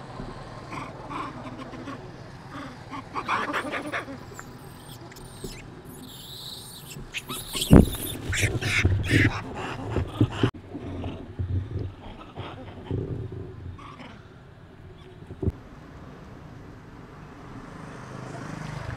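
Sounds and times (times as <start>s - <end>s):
monkeys squeaking and chattering: 0.6s - 11.2s, 11.9s - 14.3s
high wavering squeals: 3.1s - 10.4s.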